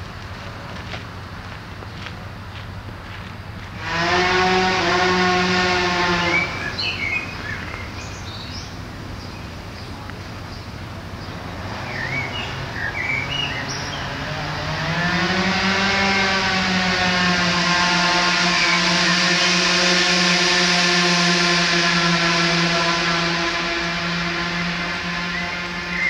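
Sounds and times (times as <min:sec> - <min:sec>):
loud droning hum: 0:00.0 - 0:26.0
birds chirping: 0:06.0 - 0:15.8, 0:22.8 - 0:26.0.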